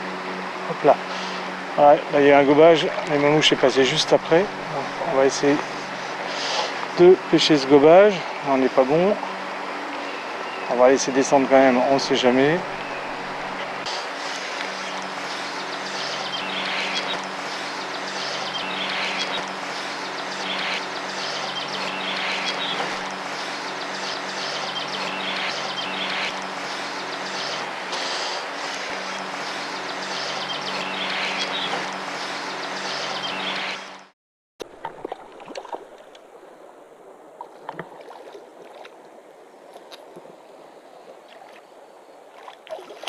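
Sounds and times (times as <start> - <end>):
steady low hum: 0.0 - 34.1.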